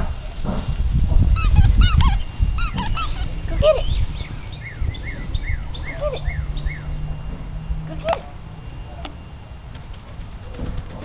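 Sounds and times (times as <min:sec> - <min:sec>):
high-pitched animal calls: 0:01.3 - 0:07.3
falling chirps: 0:01.4 - 0:09.5.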